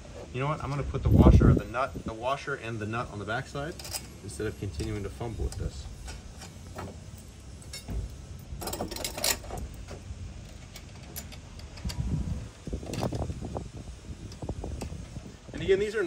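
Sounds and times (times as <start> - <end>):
metallic clicks and clinks: 3.7 - 4.2, 7.6 - 9.6.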